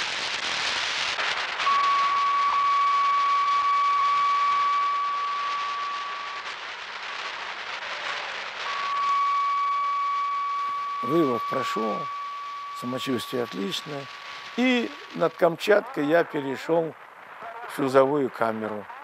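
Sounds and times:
radio static hiss: 0.0s - 19.0s
steady high tone: 1.6s - 7.5s, 8.5s - 15.9s.

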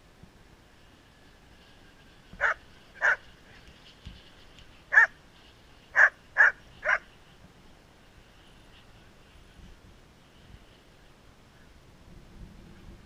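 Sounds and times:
dog barking: 2.4s - 3.2s, 4.9s - 5.1s, 6.0s - 7.0s.

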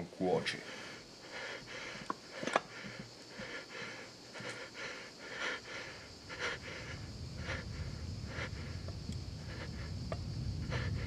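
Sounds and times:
man breathing heavily: 0.5s - 11.0s
low rumble: 6.7s - 11.0s.

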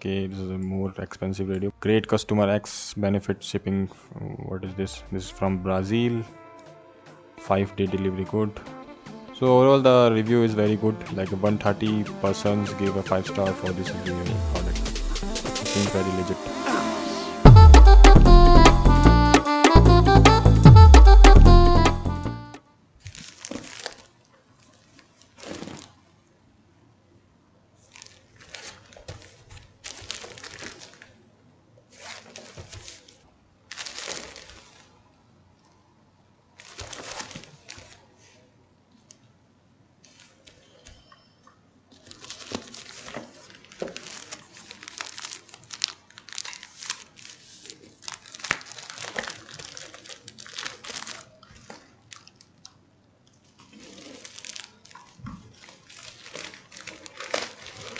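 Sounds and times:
plastic mailer crinkling: 23.0s - 25.9s, 32.0s - 34.9s, 42.0s - 52.4s, 53.7s - 57.9s.

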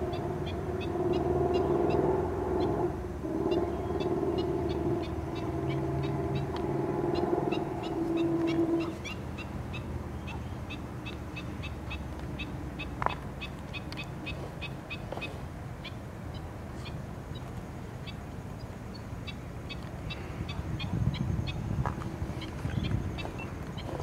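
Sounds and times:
humming drone: 0.0s - 13.1s
low steady rumble: 0.0s - 24.0s
small birds chirping: 3.5s - 24.0s.

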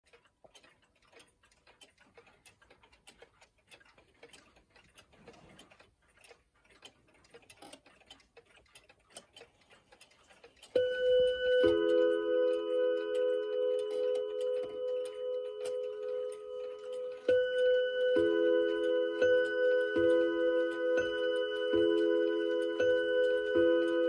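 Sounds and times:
wall clock ticking: 0.0s - 24.0s
clock chime ringing: 10.7s - 24.0s.

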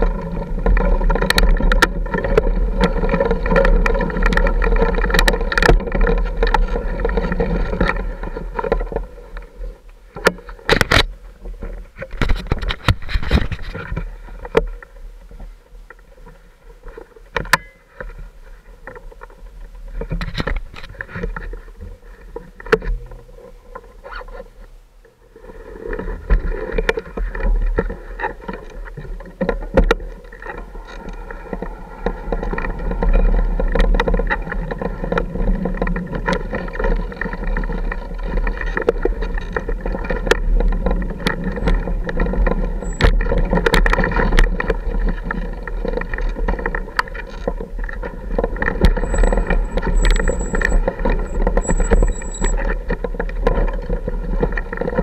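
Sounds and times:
knocks and clatters of bike: 0.0s - 24.6s, 26.0s - 55.0s
off-road motorcycle engine: 0.0s - 24.6s, 26.0s - 55.0s.

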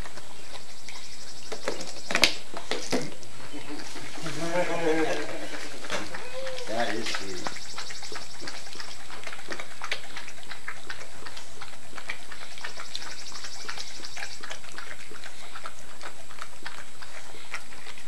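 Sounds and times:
dog licking plastic bottle: 5.1s - 18.0s.

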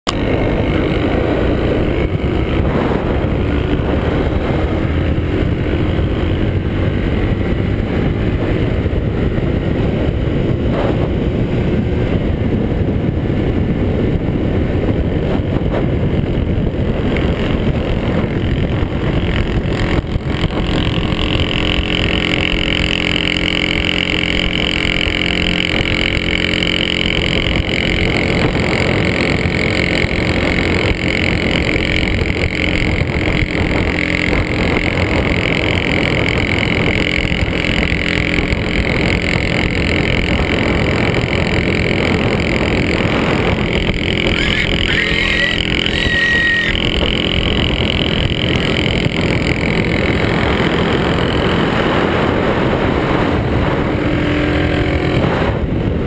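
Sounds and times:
motorcycle engine cruising: 0.0s - 56.0s
second motorcycle engine: 0.0s - 56.0s
wind rushing over microphone: 0.1s - 56.0s.

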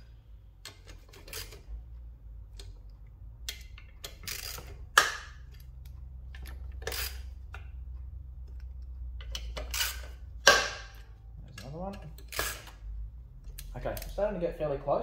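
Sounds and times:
metallic clicks and taps: 2.5s - 12.8s.

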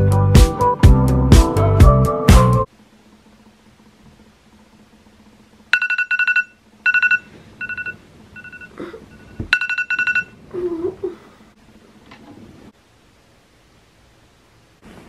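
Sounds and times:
smartphone alarm beeping: 5.8s - 10.4s.

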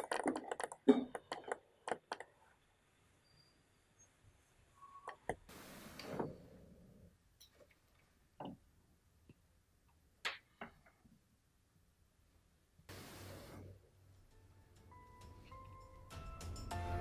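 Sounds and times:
hiss: 5.5s - 6.4s, 12.9s - 13.8s.

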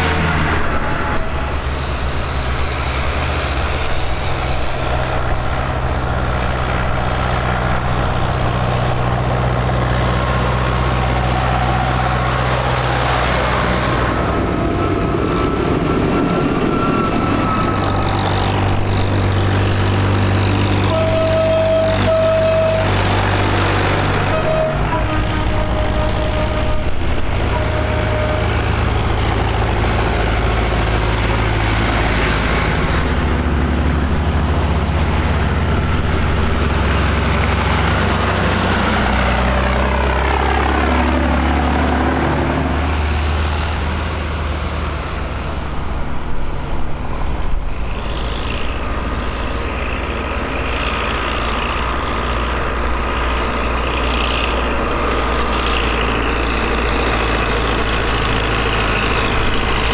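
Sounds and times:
tractor engines driving past: 0.0s - 59.9s.

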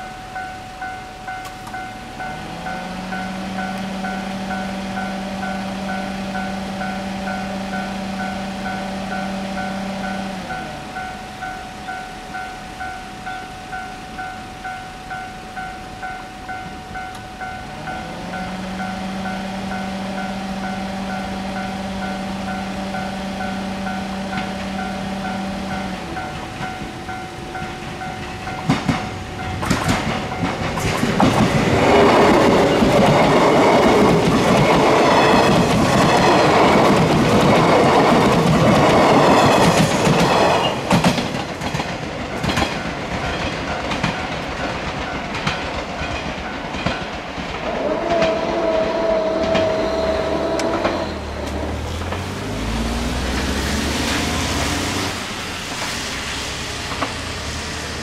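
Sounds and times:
level crossing bell ringing: 0.0s - 30.9s
train wheels clattering: 16.5s - 58.0s.

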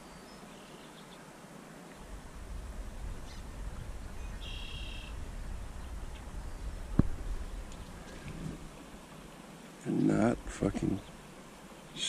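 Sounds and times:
faint bird chirps: 0.0s - 1.3s, 3.1s - 8.5s
steady creekside hiss: 0.0s - 12.0s
low microphone rumble: 2.0s - 9.0s
high bird call: 3.2s - 5.2s.

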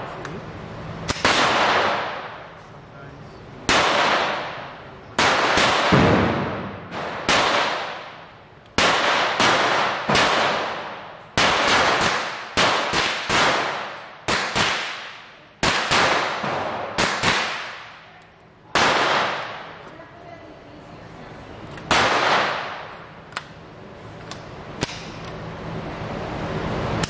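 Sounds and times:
rifle shots echoing: 1.1s - 2.5s, 3.7s - 18.0s, 18.7s - 19.8s, 21.9s - 23.0s.

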